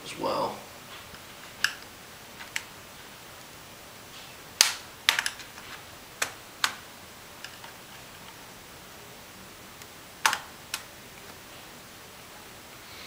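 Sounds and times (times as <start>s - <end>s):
sharp plastic clicks: 9.8s - 10.9s.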